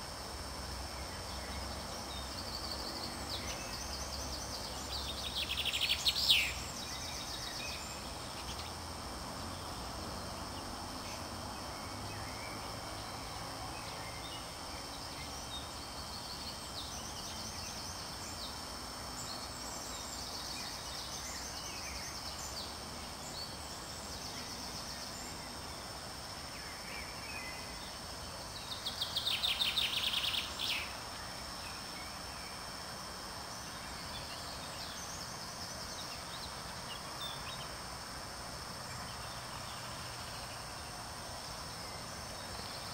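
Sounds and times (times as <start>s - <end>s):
small songbirds singing: 0.0s - 42.9s
steady background hiss: 0.0s - 42.9s.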